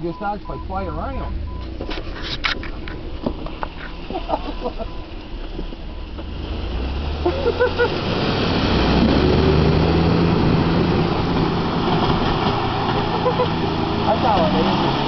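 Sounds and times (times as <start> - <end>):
vehicle engine pulling under load: 0.0 - 15.0
tyres churning mud and water: 3.0 - 15.0.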